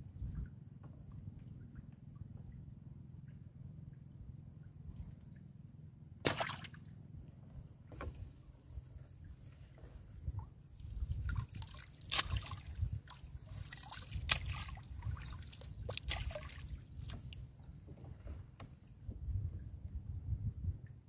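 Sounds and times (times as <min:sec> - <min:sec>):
knocks and splashes: 0:06.2 - 0:06.8, 0:10.2 - 0:18.8
water dripping off a net: 0:06.2 - 0:06.8, 0:11.2 - 0:17.4
steady low rumble: 0:07.2 - 0:17.9.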